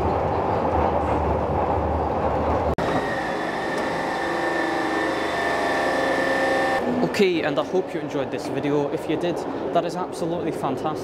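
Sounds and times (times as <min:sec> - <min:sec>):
subway train rumbling: 0:00.0 - 0:11.0
whine of held tones: 0:02.8 - 0:06.8.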